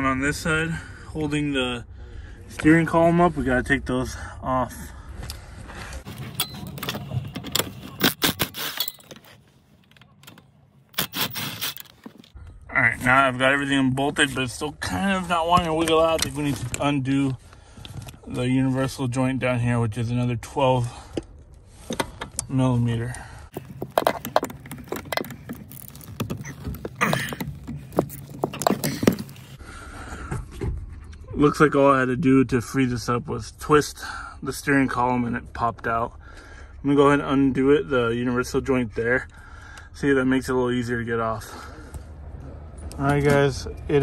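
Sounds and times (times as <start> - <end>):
socket wrench clinking and rattling: 8.0 - 9.2.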